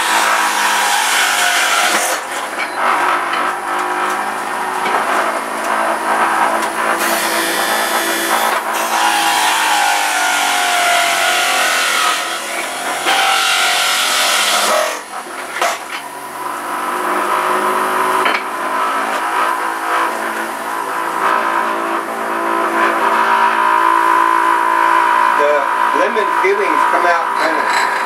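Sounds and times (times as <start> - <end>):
electric juicer motor whining: 0.0 - 28.0.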